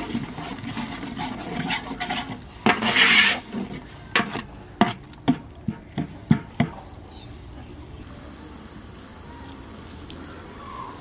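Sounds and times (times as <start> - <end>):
ladle scraping a pot: 0.0 - 5.0.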